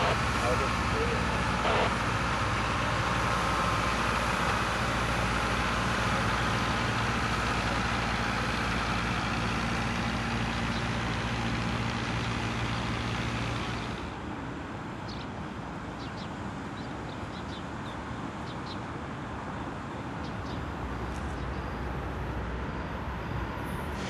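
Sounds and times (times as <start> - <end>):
truck engine humming: 0.0 - 14.2.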